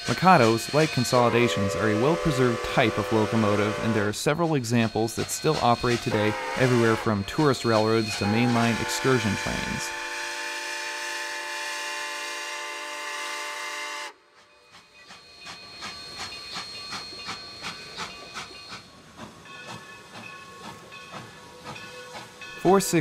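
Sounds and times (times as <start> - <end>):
steam locomotive exhaust chuffing: 0.0 - 23.0
steam whistle chord: 0.1 - 4.1, 8.2 - 14.4.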